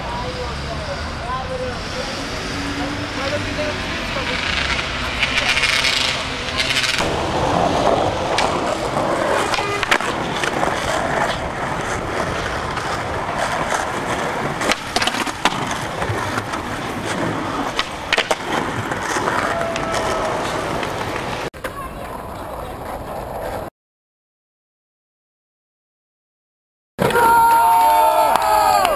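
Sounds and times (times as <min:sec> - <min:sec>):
skateboard wheels rolling on concrete: 0:00.0 - 0:23.7, 0:27.0 - 0:28.9
skateboard popping and landing: 0:04.6 - 0:23.7.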